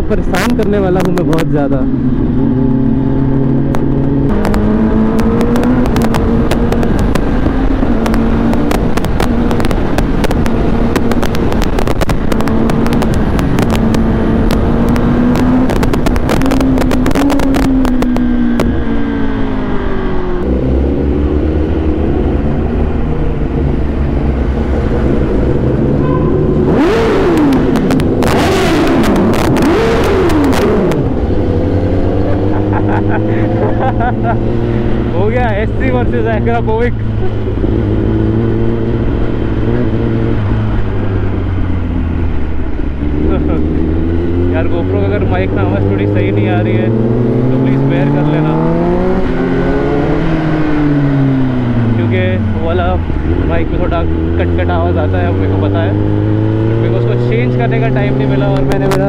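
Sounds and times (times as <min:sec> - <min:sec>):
wind noise over microphone: 0:00.0 - 0:32.5
motorcycle engine running: 0:00.0 - 0:59.0.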